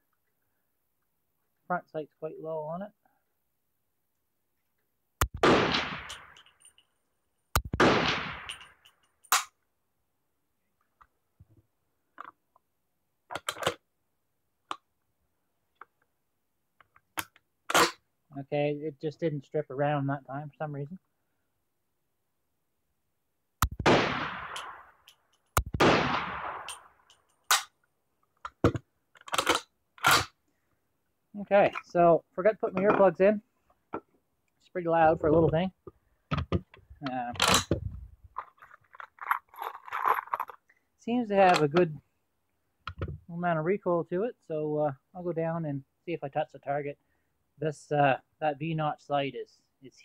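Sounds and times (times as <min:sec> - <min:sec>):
rifle shots with echo: 0:05.3 - 0:06.4, 0:07.6 - 0:08.7, 0:23.6 - 0:25.0, 0:25.6 - 0:26.9.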